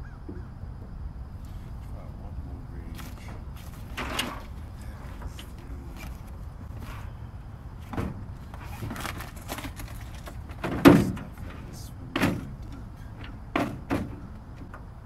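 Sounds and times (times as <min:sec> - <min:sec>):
low rumble: 0:00.0 - 0:08.6
knocks on boat hull: 0:13.5 - 0:14.2.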